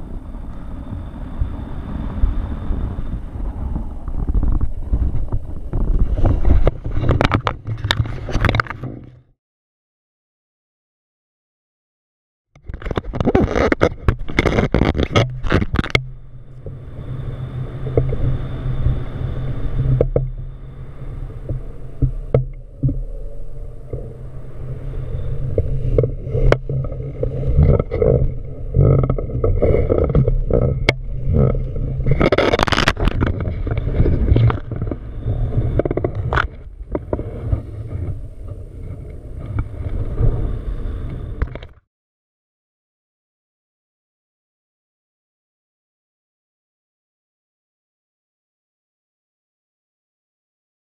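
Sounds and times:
wind buffeting microphone: 0.0 - 9.1, 12.6 - 41.8.

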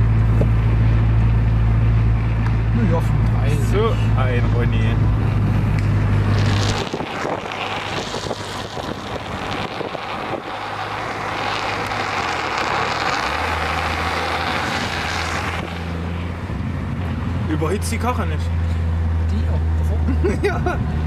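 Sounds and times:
car engine drone: 0.0 - 21.0
traffic rushing noise: 0.0 - 21.0
wind on microphone: 5.0 - 13.0, 14.2 - 17.5.

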